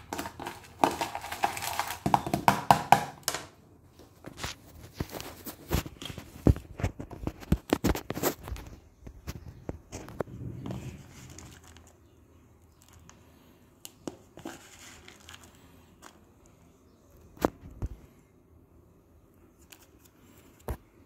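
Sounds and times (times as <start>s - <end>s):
grains rustling: 0.0s - 2.3s.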